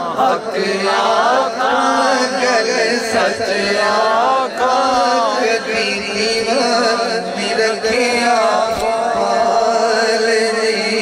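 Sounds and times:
man singing devotional song: 0.0 - 11.0.

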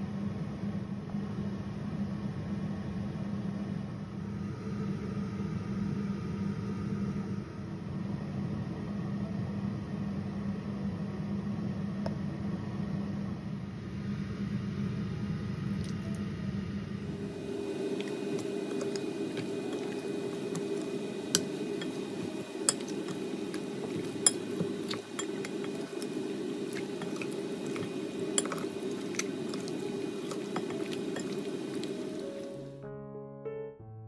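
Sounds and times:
steady low hum: 0.0 - 32.8
fork clinking on glass: 22.7 - 26.1, 27.0 - 31.4
wet squishing of meat: 22.7 - 32.3.

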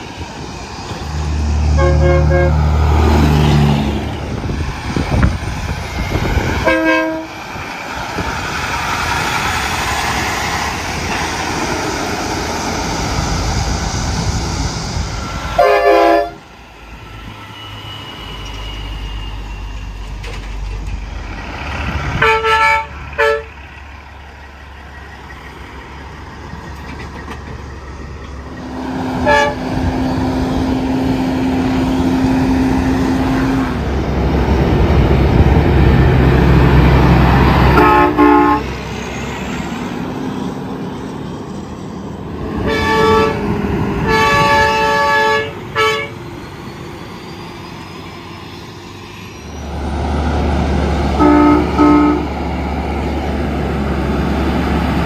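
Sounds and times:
diesel engines and road noise: 0.0 - 55.0
truck air horn blasts: 1.7 - 2.8, 6.6 - 7.4, 15.6 - 16.4, 22.2 - 23.6, 29.2 - 29.8, 37.7 - 38.7, 42.6 - 46.2, 51.2 - 52.4.

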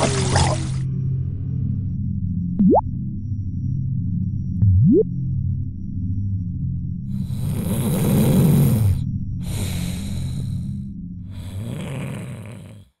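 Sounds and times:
low steady drone: 0.1 - 11.6
yawning voice: 7.2 - 10.7, 11.4 - 13.0
slow heavy breathing: 7.2 - 13.0.

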